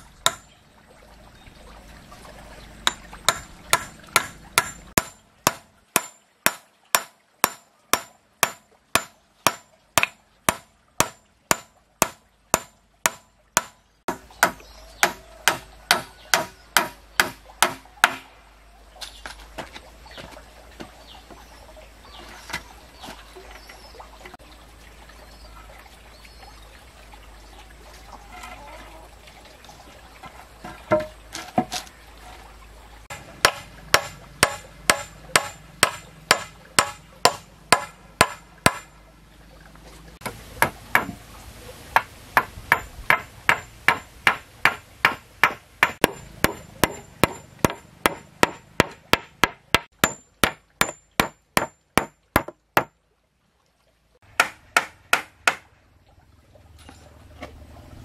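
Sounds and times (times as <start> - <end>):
hand tool striking hard: 2.9 - 18.2, 33.1 - 38.9, 42.0 - 52.9.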